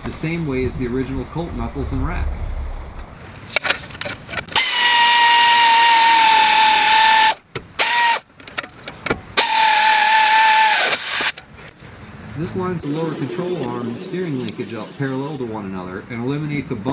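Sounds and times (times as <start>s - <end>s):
power tool motor whine: 4.5s - 8.2s, 9.4s - 11.3s.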